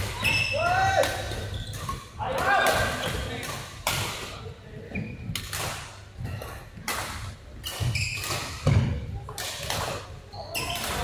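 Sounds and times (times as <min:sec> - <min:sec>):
shoes squeaking: 0:00.1 - 0:03.4, 0:04.8 - 0:05.5, 0:07.6 - 0:09.0, 0:09.9 - 0:11.0.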